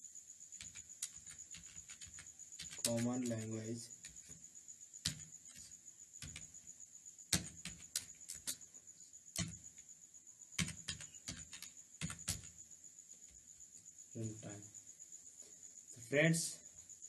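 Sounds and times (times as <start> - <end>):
faint high-pitched whine: 0.0 - 17.0
computer keyboard typing: 0.6 - 4.2, 5.0 - 6.6, 7.3 - 8.6, 9.4 - 9.6, 10.6 - 12.6.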